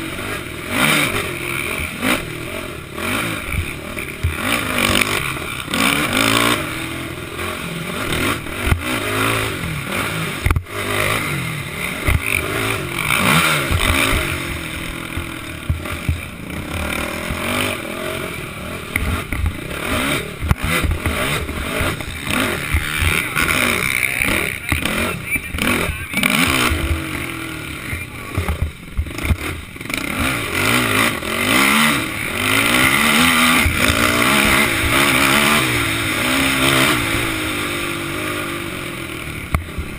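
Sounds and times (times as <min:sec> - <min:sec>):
quad engine revving: 0:00.0 - 0:39.9
knocks from rough track: 0:20.4 - 0:27.1, 0:28.3 - 0:29.6.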